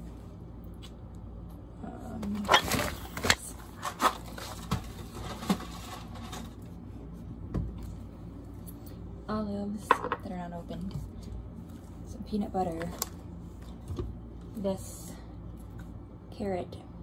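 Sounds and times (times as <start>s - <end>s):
plastic rustling: 2.3s - 6.7s.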